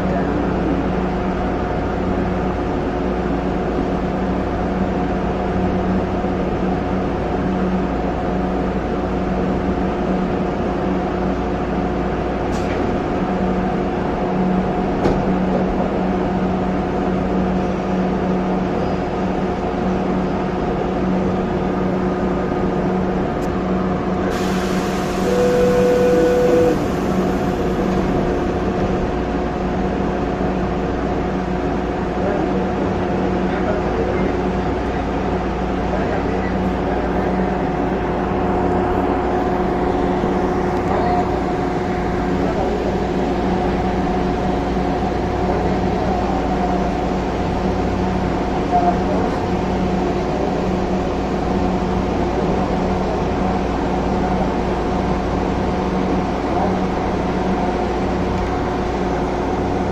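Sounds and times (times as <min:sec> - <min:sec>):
train electrical hum: 0:00.0 - 0:59.9
air hiss: 0:24.3 - 0:27.6
short steady beep: 0:25.2 - 0:26.8.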